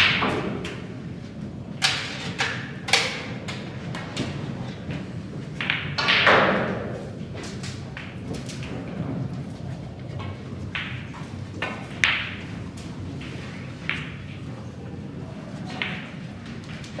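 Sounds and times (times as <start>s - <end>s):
snooker balls knocking: 4.9s - 7.0s, 10.2s - 14.5s, 15.6s - 17.0s.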